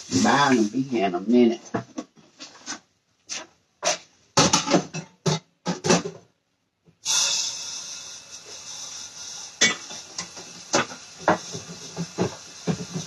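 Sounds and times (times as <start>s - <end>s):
tap water running: 7.2s - 13.0s.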